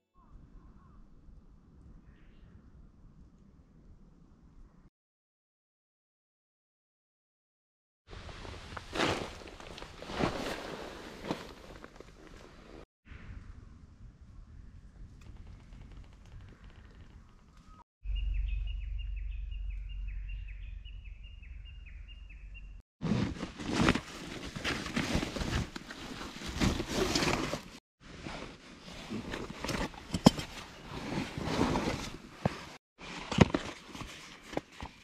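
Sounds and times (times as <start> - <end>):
rustling of camping gear: 8.1 - 12.9, 23.0 - 35.0
wind rumble on microphone: 13.1 - 18.6
small bird singing: 17.5 - 22.8.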